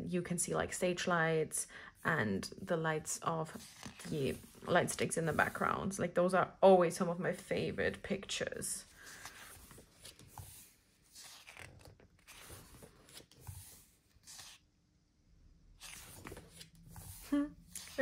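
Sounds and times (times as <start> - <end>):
book pages rustling: 3.4 - 5.8, 8.9 - 14.7, 15.8 - 18.0.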